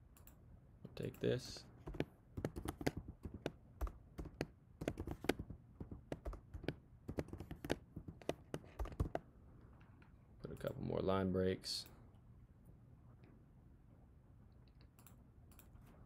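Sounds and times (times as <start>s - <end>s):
typing on a keyboard: 1.8s - 9.2s.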